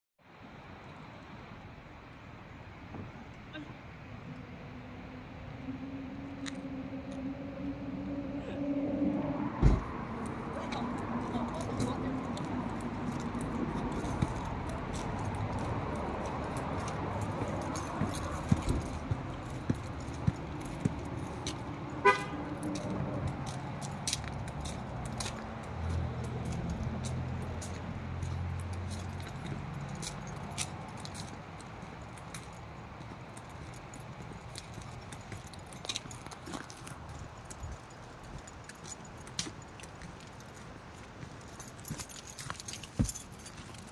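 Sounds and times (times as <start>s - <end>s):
steady outdoor hiss: 0.2s - 43.9s
low hum: 3.7s - 12.0s
light jingling: 10.0s - 43.9s.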